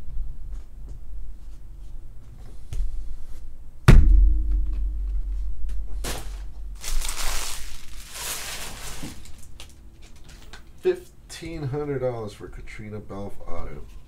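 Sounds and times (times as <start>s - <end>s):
low steady hum: 0.0s - 14.0s
dull thunk: 3.9s - 6.7s.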